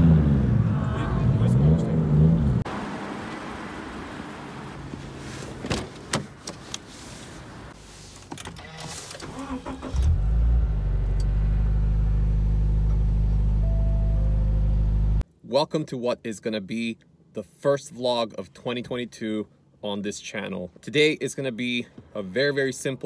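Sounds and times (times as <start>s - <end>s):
car engine starting and idling: 7.4s - 15.2s.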